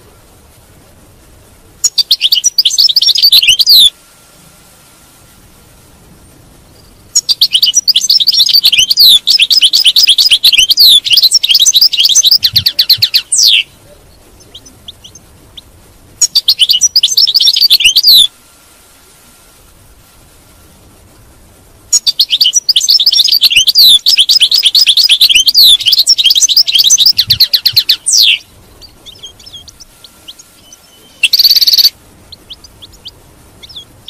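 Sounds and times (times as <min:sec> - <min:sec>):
finch singing: 0:01.8 - 0:03.9, 0:06.7 - 0:18.3, 0:21.9 - 0:34.0.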